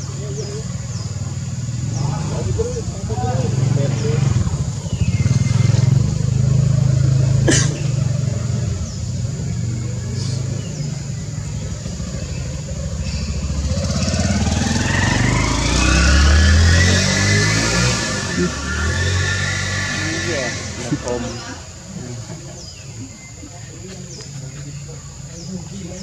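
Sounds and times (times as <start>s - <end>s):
engine rumbling: 0.0s - 26.0s.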